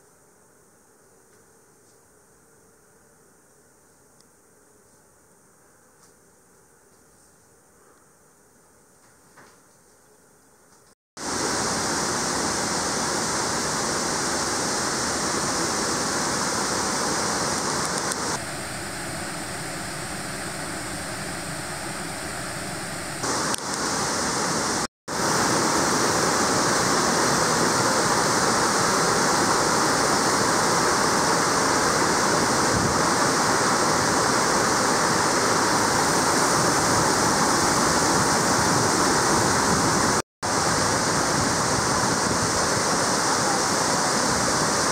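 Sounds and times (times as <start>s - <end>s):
water rushing down a waterfall: 11.2s - 44.9s.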